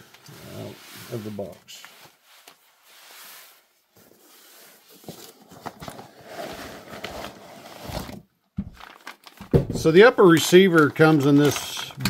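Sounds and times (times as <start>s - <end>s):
cardboard and plastic rustling: 3.6s - 12.0s.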